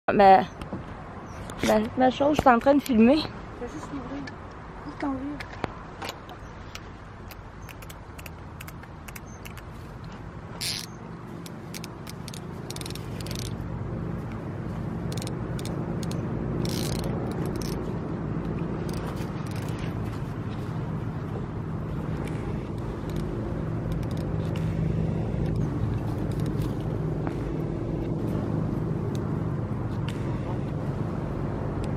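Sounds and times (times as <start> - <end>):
handling clicks and knocks: 5.4 - 13.6, 15.1 - 20.6, 22.2 - 24.7
small engine humming: 10.6 - 31.9.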